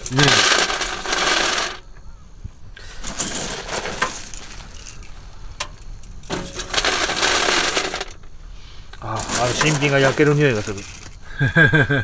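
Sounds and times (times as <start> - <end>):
wood pellets pouring into metal hopper: 0.0 - 1.8, 3.0 - 5.1, 6.2 - 8.2, 9.0 - 11.2.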